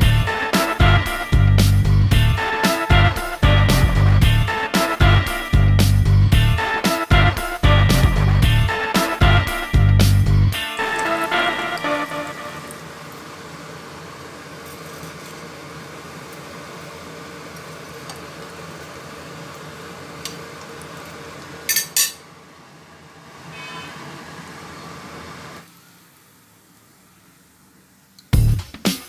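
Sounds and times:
metal spoon clinking on pan: 0:21.7 - 0:22.2.

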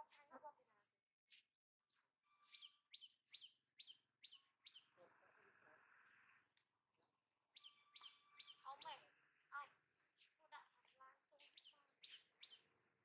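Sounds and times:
faint bird chirps: 0:01.9 - 0:10.5, 0:11.4 - 0:13.0.

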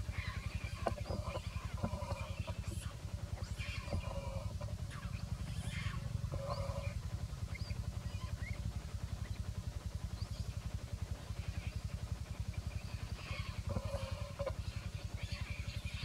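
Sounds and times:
small engine throbbing: 0:00.0 - 0:16.0
monkeys screaming: 0:00.1 - 0:08.6, 0:12.8 - 0:16.0.

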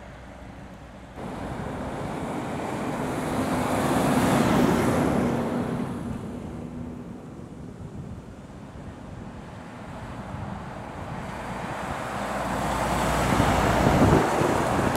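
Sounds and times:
lorry passing close by: 0:01.2 - 0:07.2, 0:09.6 - 0:14.9
wind buffeting microphone: 0:01.2 - 0:14.9.

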